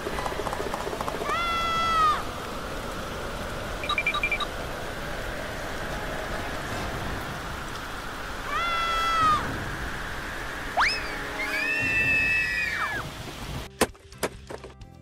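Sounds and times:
steady hiss: 0:01.3 - 0:13.7.

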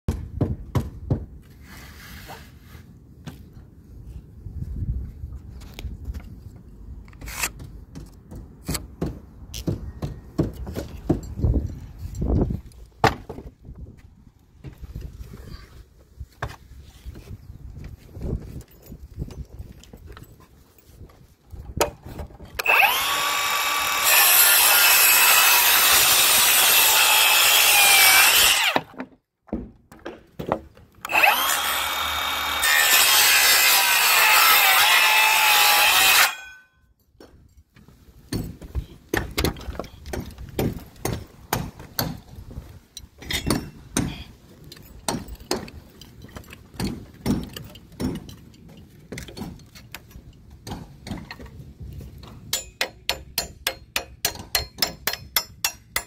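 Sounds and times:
circular saw cutting wood: 0:22.6 - 0:28.9, 0:31.1 - 0:36.7.

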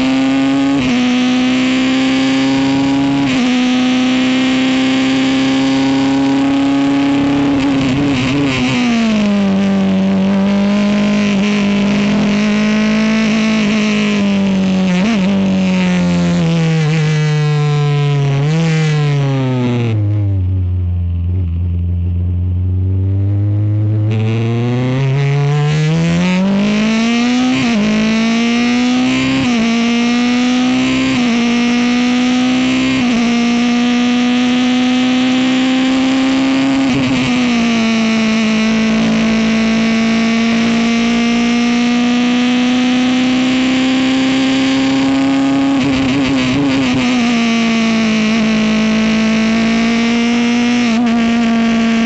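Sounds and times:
race car engine revving: 0:00.0 - 0:20.4, 0:21.3 - 0:52.0.

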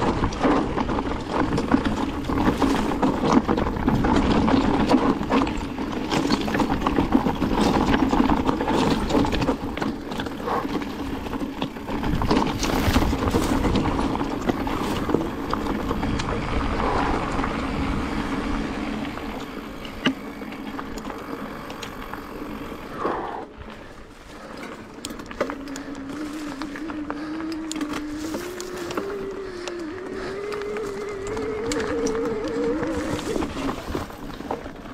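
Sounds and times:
bike rattling and knocking: 0:00.0 - 0:23.0, 0:23.6 - 0:34.9
tyres crunching over stones: 0:00.0 - 0:34.9.

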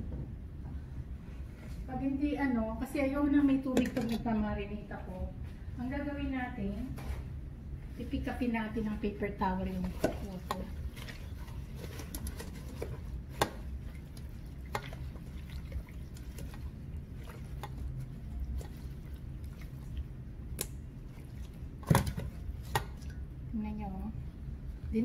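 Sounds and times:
wet squishing and handling: 0:06.9 - 0:25.0.

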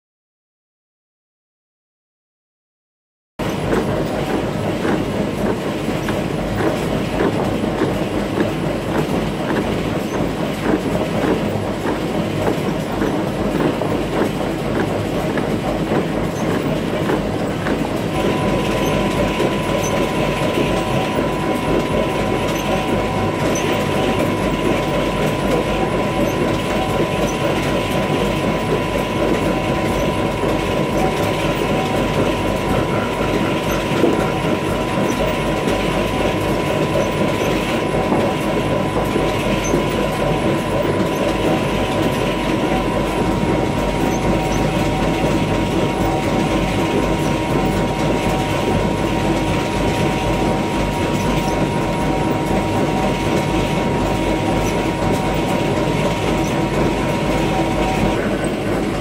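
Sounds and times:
mechanical rumble: 0:03.4 - 0:59.0
high whine: 0:17.6 - 0:59.0.

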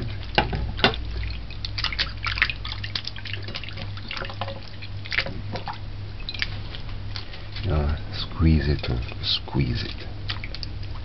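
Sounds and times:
low steady hum: 0:00.0 - 0:11.0
water splashing in a plate: 0:00.0 - 0:11.0.

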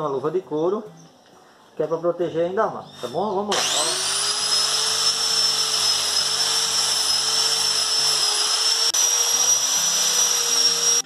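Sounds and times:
angle grinder grinding steel wire: 0:03.0 - 0:11.0.

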